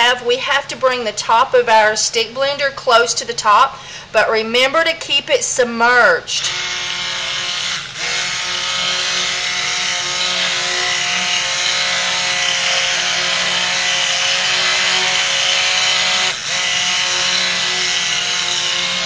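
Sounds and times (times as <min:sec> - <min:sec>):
stick blender motor whining: 0:06.3 - 0:19.0.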